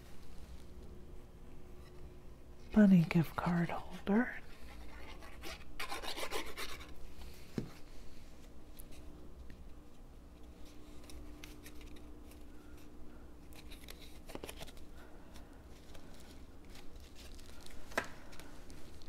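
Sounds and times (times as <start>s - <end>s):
faint steady hum: 0.0s - 19.0s
paper rustling: 13.5s - 19.0s.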